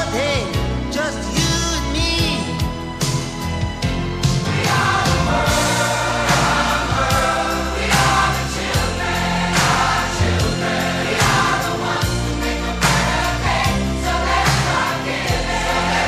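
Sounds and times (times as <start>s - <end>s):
steady beat: 4.4s - 16.0s
voices singing in chorus: 4.5s - 16.0s.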